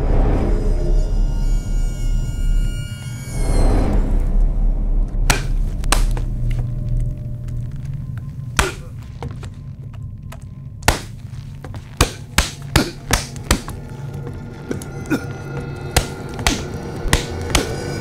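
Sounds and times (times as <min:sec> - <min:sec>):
low music drone: 0:00.0 - 0:18.0
sharp knocks and thuds: 0:10.3 - 0:13.8.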